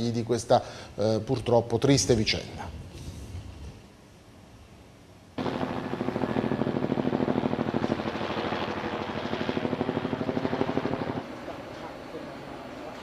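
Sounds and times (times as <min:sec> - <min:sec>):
helicopter rotor chopping: 0:05.4 - 0:13.0.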